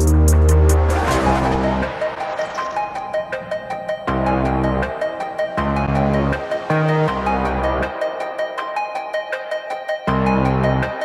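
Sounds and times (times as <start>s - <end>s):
electronic music with fast beat: 0.0s - 2.8s.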